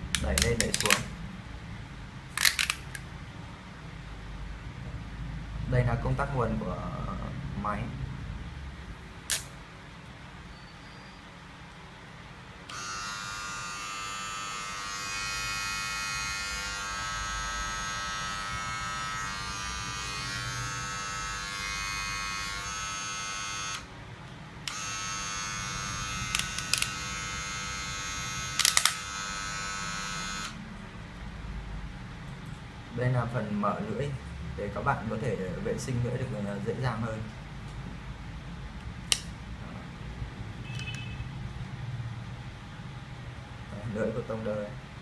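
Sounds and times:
hair clipper buzzing: 12.7 - 23.9, 24.7 - 30.6.

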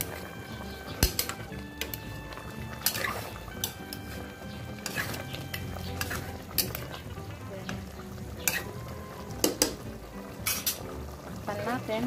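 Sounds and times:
metal spoon stirring in pot: 0.0 - 12.0
simmering sauce bubbling: 0.0 - 12.0
spoon clinking against pot: 2.8 - 4.1, 8.4 - 8.8, 10.4 - 10.8.

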